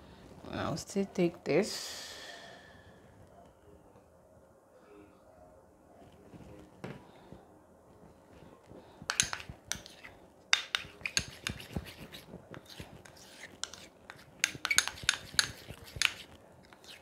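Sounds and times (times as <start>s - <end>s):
metal spoon scraping container: 9.1s - 17.0s.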